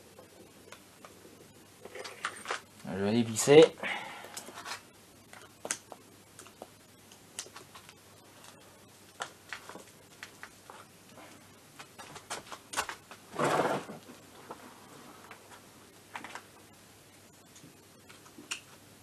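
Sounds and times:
rustling noise: 0:09.5 - 0:16.5.

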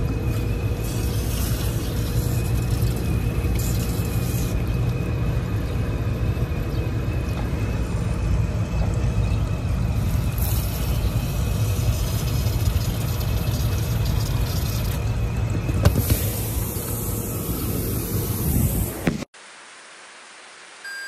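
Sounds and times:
water hissing from hose: 0:00.0 - 0:05.6, 0:10.0 - 0:19.0
air conditioning machine hum: 0:00.0 - 0:19.3.

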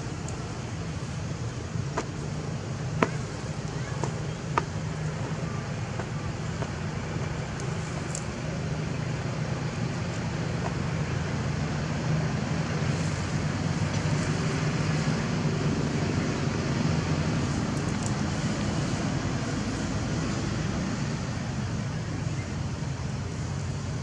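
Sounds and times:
engine humming: 0:00.0 - 0:24.0
faint outdoor hiss: 0:00.0 - 0:24.0.

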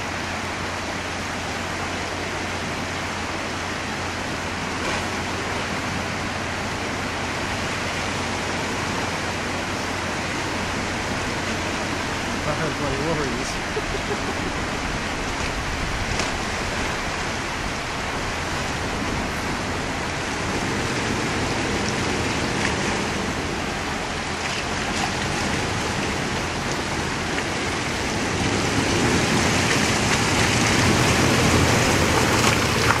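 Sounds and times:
vehicle engine: 0:00.0 - 0:33.0
water rushing over rocks: 0:00.0 - 0:33.0
wheels washing through water: 0:00.0 - 0:33.0.

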